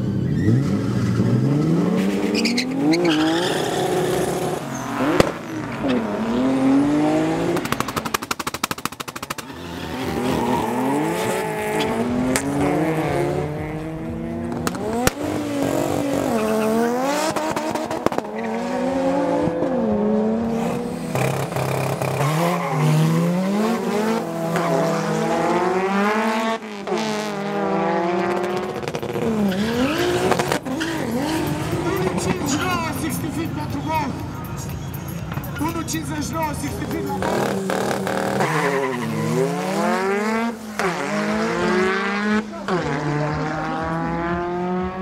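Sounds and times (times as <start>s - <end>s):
race car engines accelerating: 0.0s - 45.0s
sharp exhaust pops: 7.5s - 9.5s.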